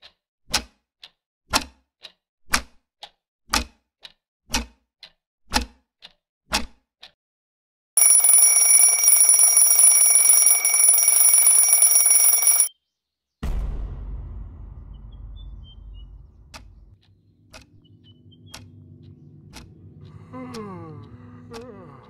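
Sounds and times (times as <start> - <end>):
alarm clock ringing: 8.0 - 12.7
low thud with rumble: 13.4 - 17.0.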